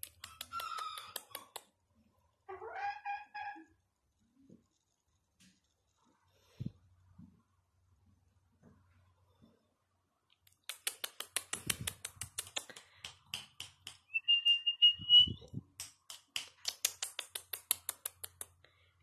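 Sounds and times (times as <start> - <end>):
fast sharp clicks: 10.5 - 14.1, 15.8 - 18.6
short high whistle: 14.2 - 15.4.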